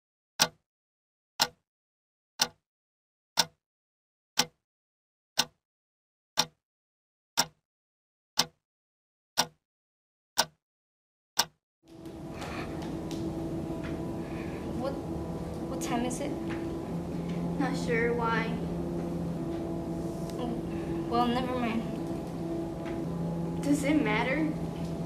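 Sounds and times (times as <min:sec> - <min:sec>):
clock ticking: 0:00.4 - 0:00.6, 0:02.4 - 0:02.6, 0:03.4 - 0:03.6, 0:04.4 - 0:04.6, 0:05.4 - 0:05.6, 0:06.4 - 0:06.6, 0:07.4 - 0:07.6, 0:08.4 - 0:08.6, 0:09.4 - 0:09.6, 0:10.4 - 0:10.6, 0:11.4 - 0:11.6
steady background hum: 0:11.9 - 0:25.0.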